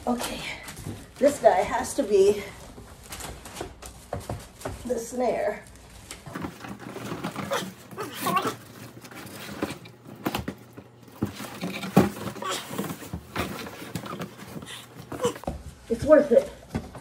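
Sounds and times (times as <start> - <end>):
cardboard boxes scraping and rustling: 6.2 - 16.4.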